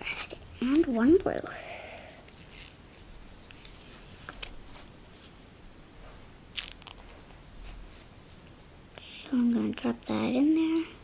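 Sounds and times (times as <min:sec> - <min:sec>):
paper strips tearing: 0:02.3 - 0:04.5, 0:06.5 - 0:07.0.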